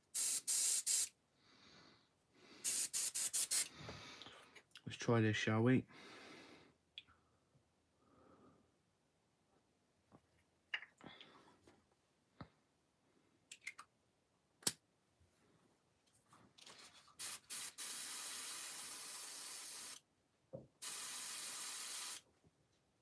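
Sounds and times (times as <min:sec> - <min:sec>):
airbrush hissing: 0:00.0 - 0:01.1, 0:02.6 - 0:03.7, 0:17.2 - 0:20.0, 0:20.8 - 0:22.2.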